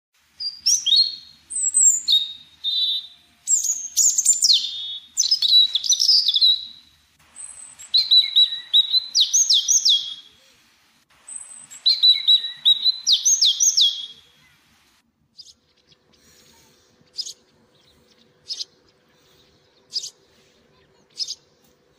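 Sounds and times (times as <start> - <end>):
songbird singing: 0.4 - 10.5, 11.2 - 14.6, 15.2 - 21.9.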